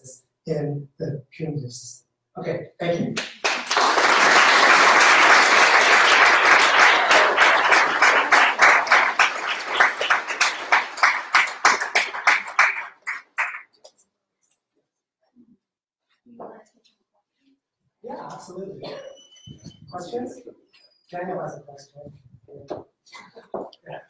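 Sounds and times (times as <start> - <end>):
audience applauding: 3.2 - 13.8.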